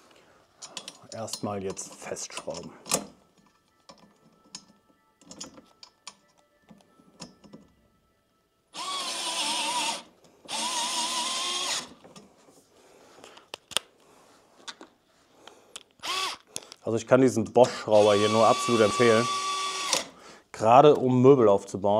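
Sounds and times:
handling clicks and knocks: 0.6s - 7.8s
cordless screwdriver motor whine: 8.8s - 11.9s, 16.0s - 16.4s, 18.0s - 20.1s.

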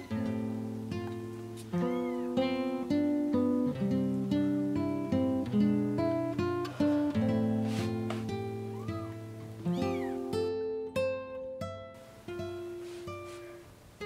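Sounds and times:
acoustic guitar melody: 0.0s - 14.0s
kitten mewing: 1.6s - 2.8s, 8.6s - 10.4s.

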